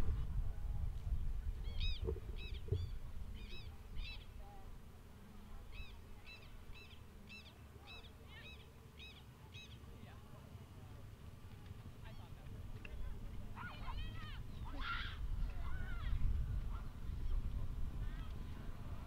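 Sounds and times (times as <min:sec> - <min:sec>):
bird calling in harsh notes: 0:01.6 - 0:04.4.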